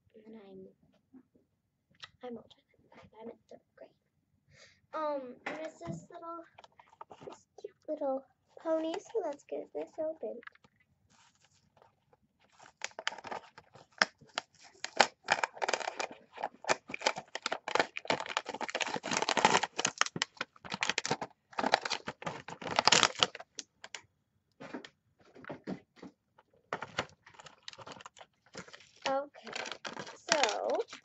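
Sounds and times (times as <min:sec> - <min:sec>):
plastic packaging crinkling: 0:08.6 - 0:24.0, 0:26.7 - 0:31.0.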